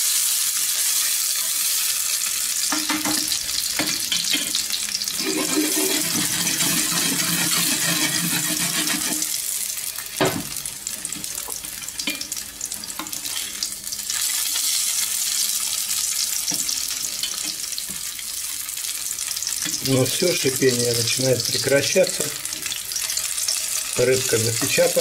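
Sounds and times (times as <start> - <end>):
fish sizzling in frying pan: 0.0 - 25.0
spatula knocking pan: 2.6 - 4.6, 5.2 - 9.3.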